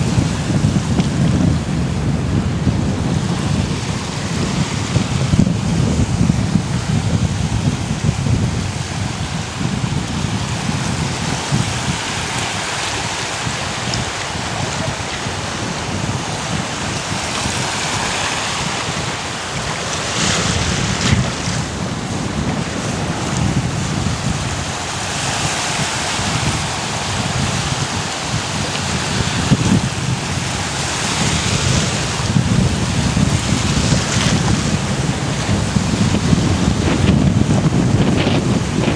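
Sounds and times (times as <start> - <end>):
wind buffeting microphone: 0.0 - 38.9
small waves breaking: 8.7 - 32.4.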